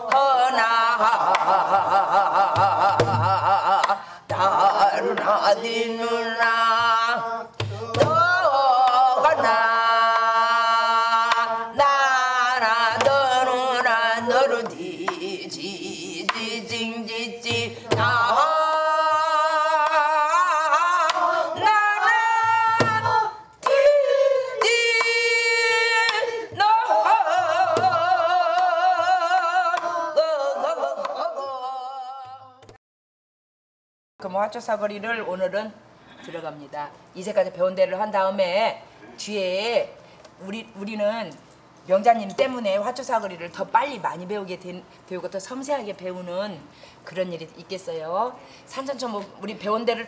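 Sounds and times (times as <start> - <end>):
wordless vocal singing: 0.0 - 32.6.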